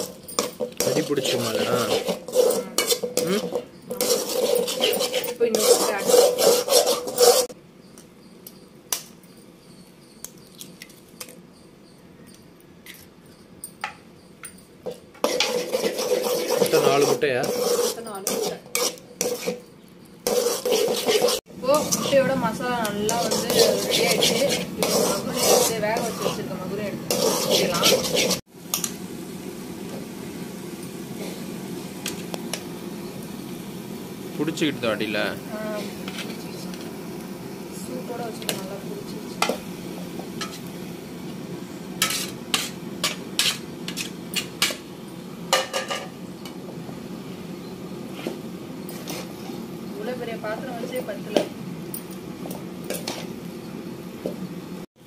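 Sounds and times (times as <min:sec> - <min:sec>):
metal spatula scraping a pan: 0:00.0 - 0:07.6, 0:14.8 - 0:28.8, 0:35.8 - 0:36.5, 0:39.4 - 0:40.7, 0:42.0 - 0:44.8, 0:48.1 - 0:49.6
kerosene stove hissing: 0:00.0 - 0:12.0, 0:13.9 - 0:55.0.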